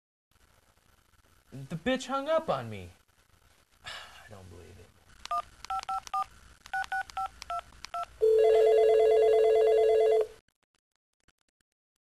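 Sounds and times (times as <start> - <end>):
phone keypad beeps: 5.3 - 10.3
telephone ringing tone: 8.0 - 10.4.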